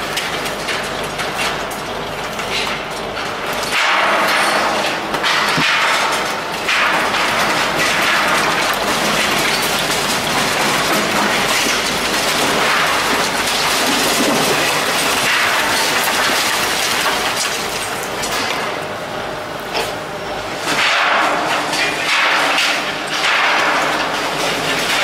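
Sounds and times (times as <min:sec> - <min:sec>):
concrete demolition crackling: 0:00.0 - 0:18.8, 0:20.6 - 0:25.0
rubble breaking and falling: 0:03.5 - 0:18.8.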